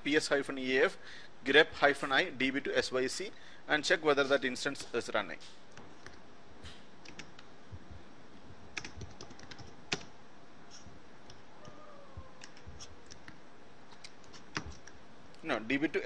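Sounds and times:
keyboard keys clicking: 7.0s - 7.4s, 8.8s - 10.1s.

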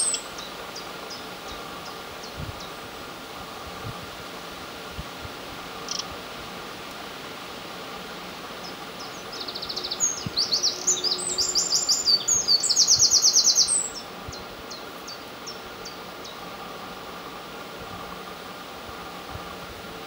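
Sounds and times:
wren singing trills: 0.0s - 2.8s, 5.8s - 6.1s, 8.5s - 16.6s.

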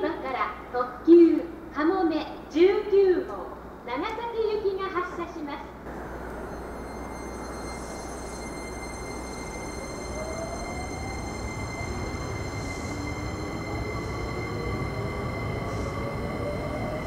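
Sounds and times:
train rumble: 3.5s - 17.0s
faint whining tones: 4.8s - 17.0s.

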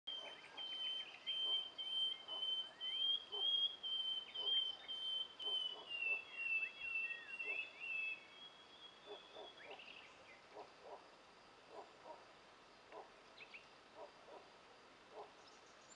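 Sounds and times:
birds singing and calling: 0.1s - 11.0s, 12.9s - 14.4s.

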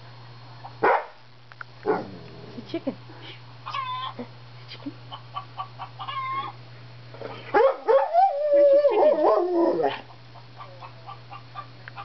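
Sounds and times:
dog howling whine: 7.9s - 10.0s.

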